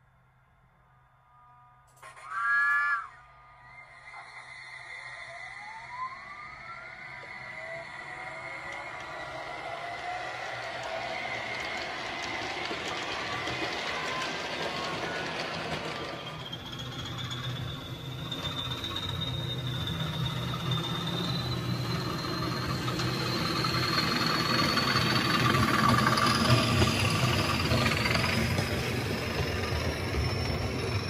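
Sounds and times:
model train motor whine: 1.9 - 31.0
wheels rumbling on track: 7.0 - 31.0.

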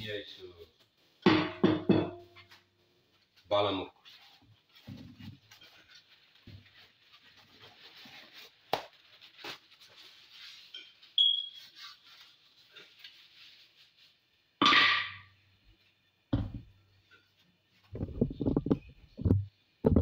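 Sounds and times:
short high squeak: 11.2 - 11.8.

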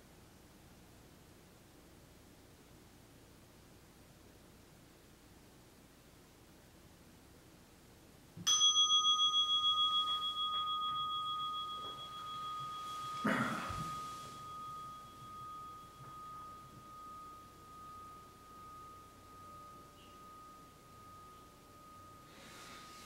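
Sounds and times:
meditation bell ringing: 8.4 - 23.0
cloth rustling: 10.0 - 17.3.

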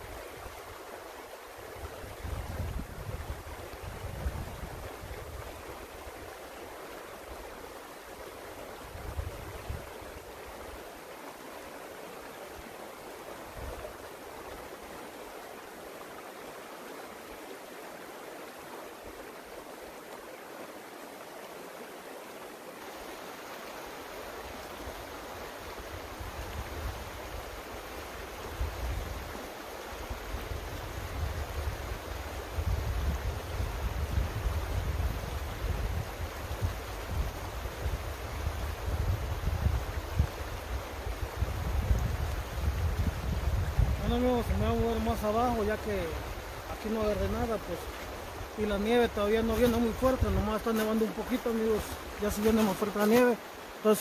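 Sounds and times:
creek water rushing: 0.0 - 54.0
wind rumble on microphone: 1.7 - 6.4, 8.8 - 10.8, 13.5 - 14.0, 25.7 - 52.7.

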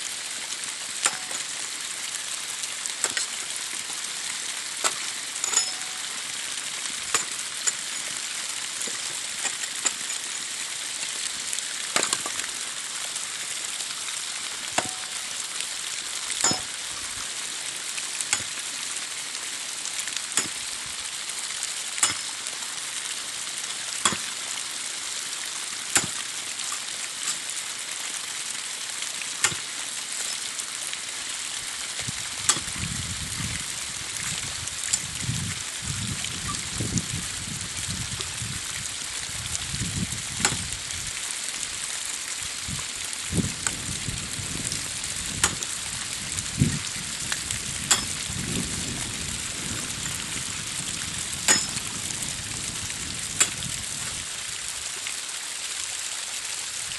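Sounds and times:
hammer striking bricks: 14.8 - 15.1, 26.0 - 26.2, 45.4 - 45.6, 51.5 - 51.8.

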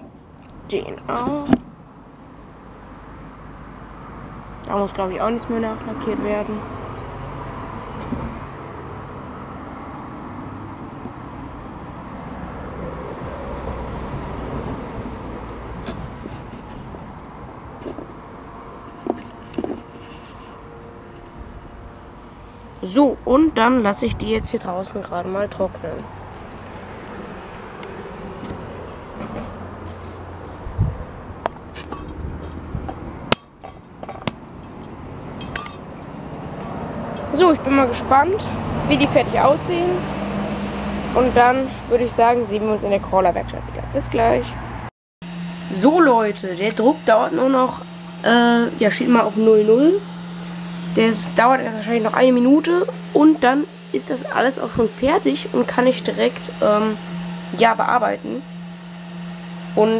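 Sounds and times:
outdoor background rumble: 0.0 - 59.9
metal can clicks and clinks: 31.8 - 35.9.

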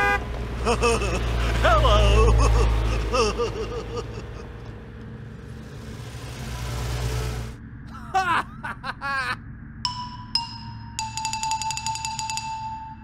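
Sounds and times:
truck engine running: 0.0 - 7.6.

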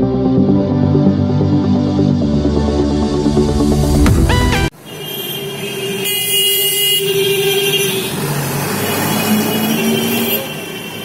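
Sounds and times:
car horns sounding: 4.3 - 8.2
motor vehicles passing: 7.1 - 10.9.

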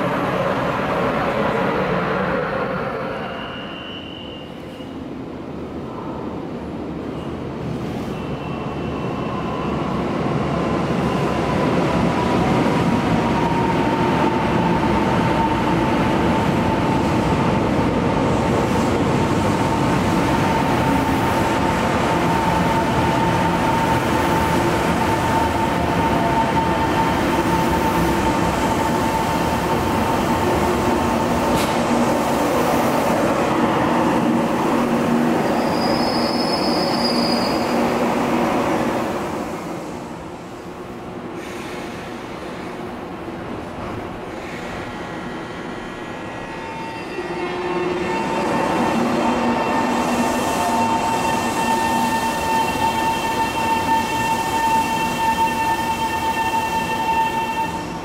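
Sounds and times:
high whine of braking train: 0.0 - 5.2, 7.2 - 58.0
brief high squeal: 3.2 - 5.0, 35.6 - 37.8, 46.5 - 48.4.

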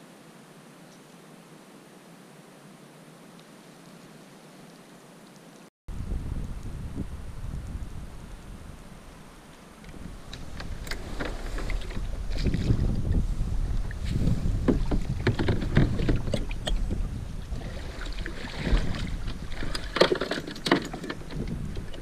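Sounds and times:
plastic kayak hull scraping: 10.0 - 22.0
water splashing: 10.0 - 22.0
paddle clattering on deck: 14.7 - 16.9, 18.6 - 22.0.

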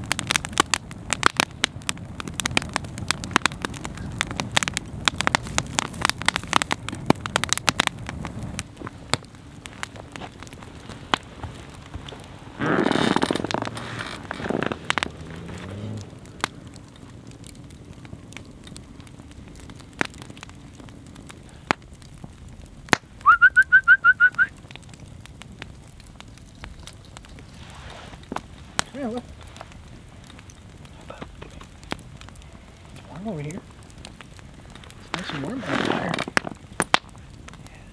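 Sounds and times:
campfire crackling and popping: 0.0 - 37.9
high whistled notes: 23.2 - 24.5.

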